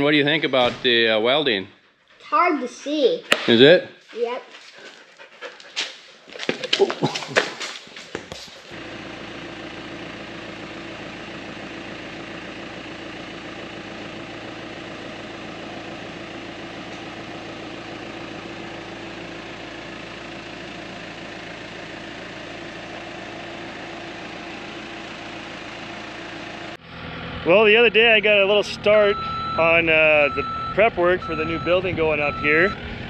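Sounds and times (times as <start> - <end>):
tractor diesel engine idling: 8.7 - 33.0.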